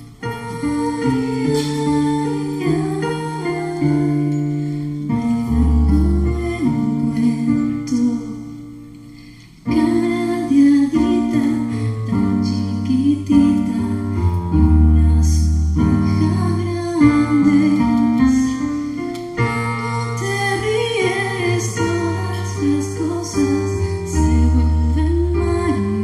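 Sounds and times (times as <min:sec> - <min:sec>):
electronic keyboard piano chords: 0:00.0 - 0:26.0
woman singing: 0:00.1 - 0:04.4, 0:05.2 - 0:08.8, 0:09.6 - 0:26.0.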